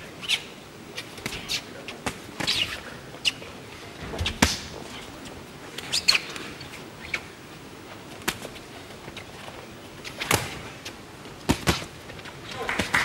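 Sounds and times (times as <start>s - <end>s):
shoes squeaking on canvas: 0.2s - 3.4s, 4.2s - 7.4s
punches thudding: 11.4s - 11.9s
arena crowd noise: 12.4s - 13.0s.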